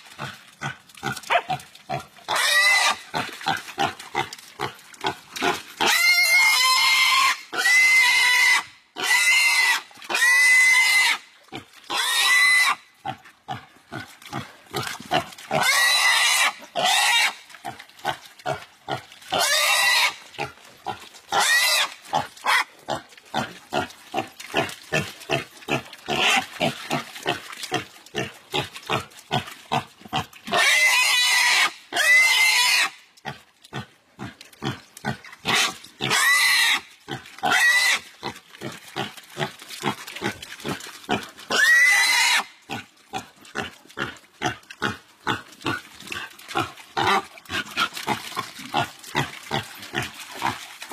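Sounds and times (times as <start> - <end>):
pig grunting: 0.0 - 7.8, 37.1 - 50.9
pig squealing: 1.1 - 3.9, 5.8 - 11.2, 11.9 - 12.8, 15.5 - 17.4, 19.3 - 20.2, 21.3 - 22.7, 26.1 - 27.0, 30.5 - 33.0, 35.5 - 38.1, 41.5 - 42.6.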